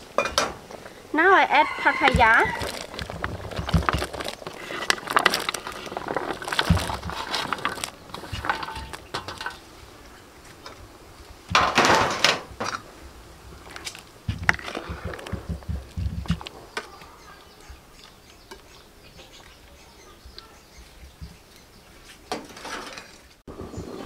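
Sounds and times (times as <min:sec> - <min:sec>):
boiling water: 0:00.0 - 0:16.5
fruit clattering off metal tray: 0:01.6 - 0:09.7, 0:11.5 - 0:12.9.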